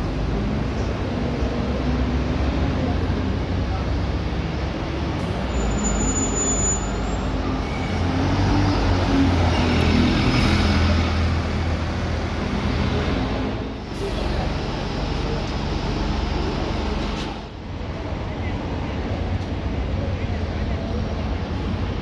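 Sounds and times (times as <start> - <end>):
bus diesel engine running: 0.0 - 22.0
traffic hum: 0.0 - 22.0.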